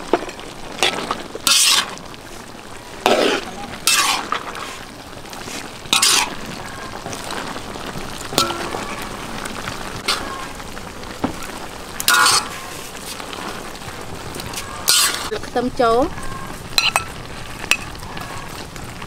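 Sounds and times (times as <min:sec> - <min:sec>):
food sizzling in a wok: 0:00.0 - 0:19.0
metal spatula scraping pan: 0:00.2 - 0:02.0, 0:03.0 - 0:04.8, 0:05.5 - 0:07.3, 0:10.0 - 0:10.6, 0:12.1 - 0:13.3, 0:14.4 - 0:15.3.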